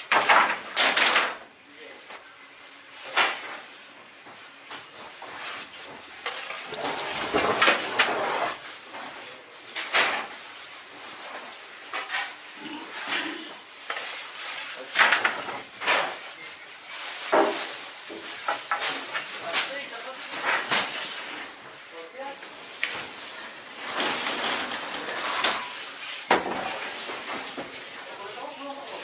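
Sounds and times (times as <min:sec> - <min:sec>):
clattering and scraping: 0:06.0 - 0:08.6, 0:22.8 - 0:27.8.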